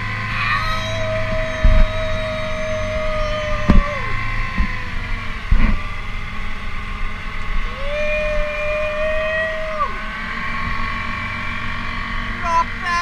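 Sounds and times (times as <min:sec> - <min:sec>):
outboard motor running: 0:00.0 - 0:13.0
water rushing along hull: 0:00.0 - 0:13.0
man yelling: 0:00.3 - 0:04.2, 0:07.8 - 0:10.0, 0:12.4 - 0:13.0.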